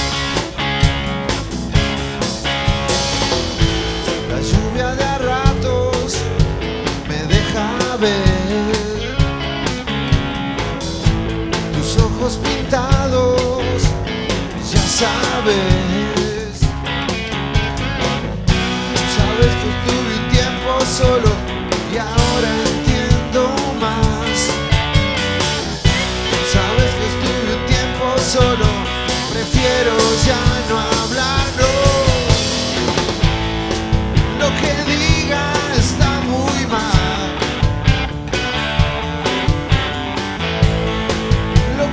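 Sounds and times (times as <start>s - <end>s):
drum beat: 0.0s - 41.9s
rock band playing live: 0.0s - 41.9s
man singing: 4.1s - 9.4s, 11.5s - 16.8s, 18.9s - 24.8s, 26.2s - 33.2s, 34.2s - 37.7s, 41.5s - 41.9s.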